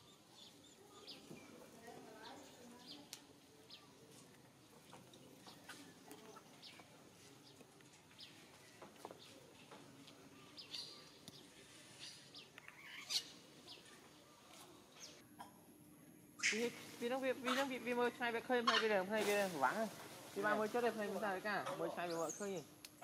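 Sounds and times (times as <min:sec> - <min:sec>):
bird chirps: 0:10.4 - 0:14.0.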